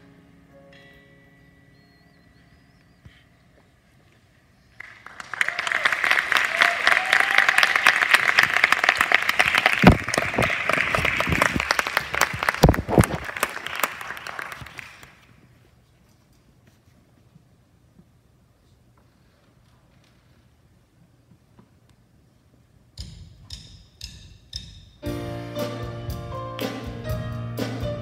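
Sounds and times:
loud claps close by: 4.8s - 15.3s
audience applauding: 4.8s - 15.4s.

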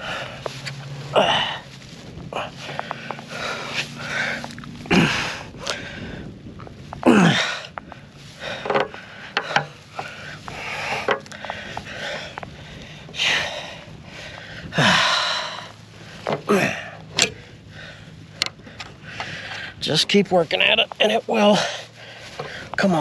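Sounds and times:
breathy falling sounds: 0.0s - 19.8s.

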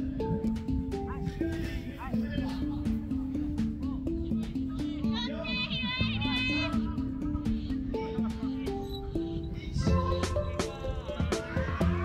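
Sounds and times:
background music with drums: 9.9s - 12.0s.

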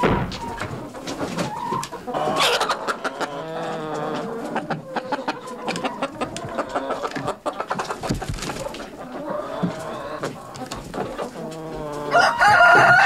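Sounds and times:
chickens clucking: 0.0s - 13.0s.

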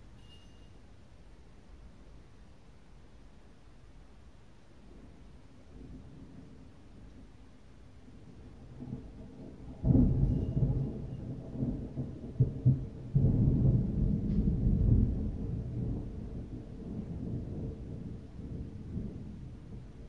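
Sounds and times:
thunder rumbling: 4.8s - 20.0s
sharp thunder cracks: 8.8s - 19.4s.

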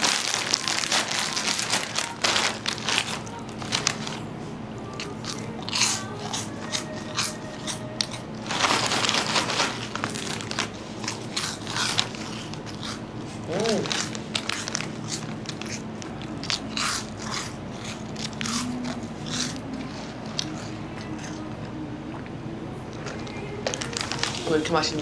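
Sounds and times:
corn puffs crunched and chewed: 0.0s - 4.3s, 4.9s - 21.6s, 22.9s - 24.6s
plastic bag crackling: 0.0s - 4.3s, 8.4s - 17.2s, 23.0s - 25.0s.

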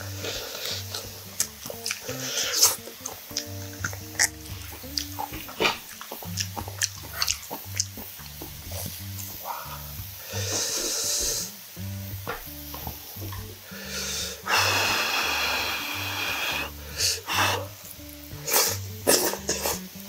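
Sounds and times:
wet chewing clicks: 0.0s - 11.6s
background music with low beat: 0.0s - 20.0s
hissy sucking sounds: 0.0s - 20.0s.

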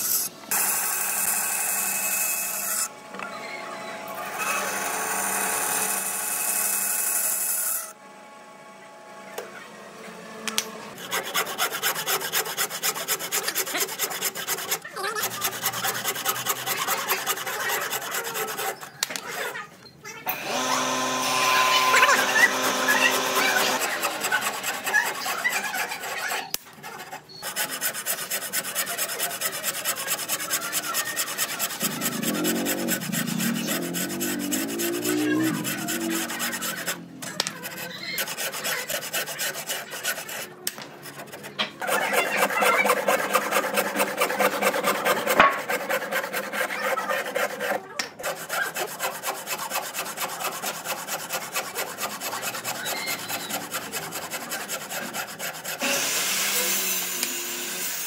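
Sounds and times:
abrasive tool scraping wood: 11.0s - 19.7s, 20.6s - 56.7s.

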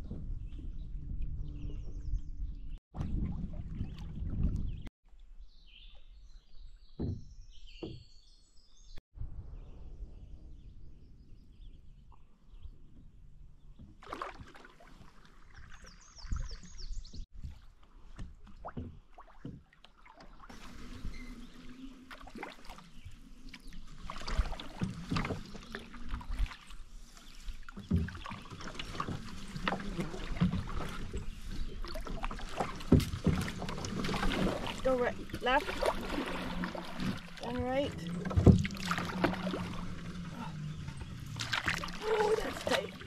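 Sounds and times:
splashes and knocks: 2.9s - 4.9s, 6.9s - 8.1s, 13.8s - 43.0s
canoe paddles pulling through water: 14.0s - 43.0s.

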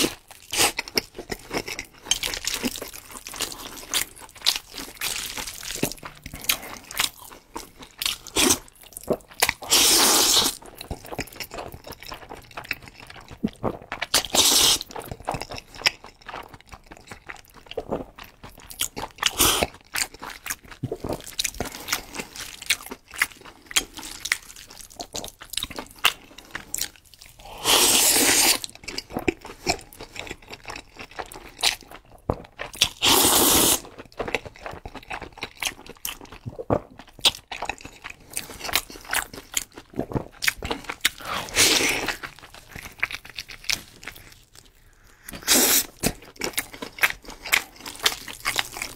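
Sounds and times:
wet chewing: 0.0s - 48.9s
loud noodle slurps: 9.6s - 10.6s, 14.4s - 14.8s, 27.4s - 28.6s, 33.0s - 33.8s, 41.2s - 42.2s, 45.3s - 46.0s.

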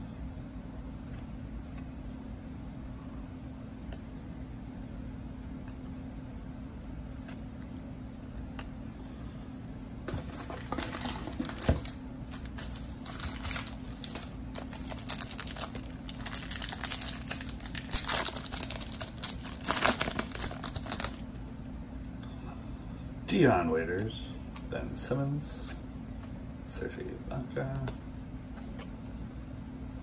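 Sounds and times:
foil wrapper crinkling and tearing: 10.1s - 21.4s.

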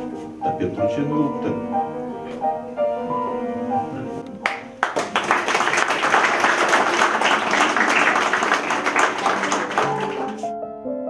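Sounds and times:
piano music: 0.0s - 11.0s
audience applauding: 4.4s - 10.5s.

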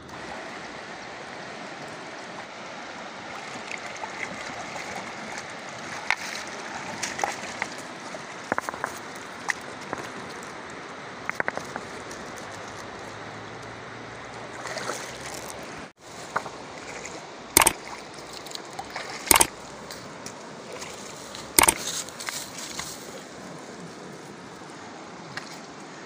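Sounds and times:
river rushing: 0.0s - 26.0s
footsteps on river stones: 8.5s - 10.4s, 14.7s - 16.9s, 17.6s - 23.4s.

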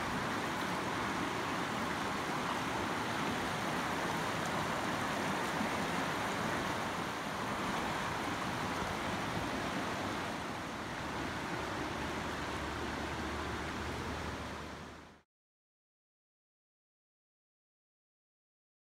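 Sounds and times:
river rushing: 0.0s - 15.2s.

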